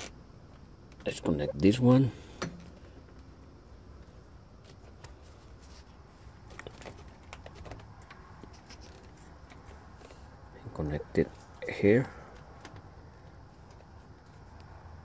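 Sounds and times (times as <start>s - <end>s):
wires clicking and rustling: 4.0s - 10.3s.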